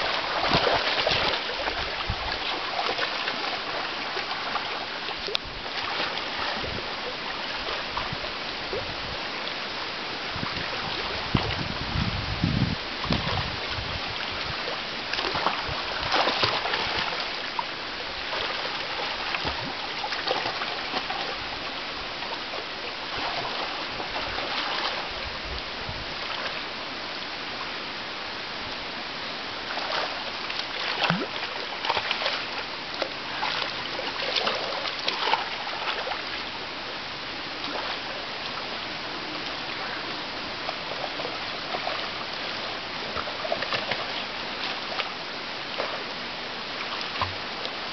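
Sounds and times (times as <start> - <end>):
otters splashing: 0.0 - 3.5
shallow water flowing: 0.0 - 47.9.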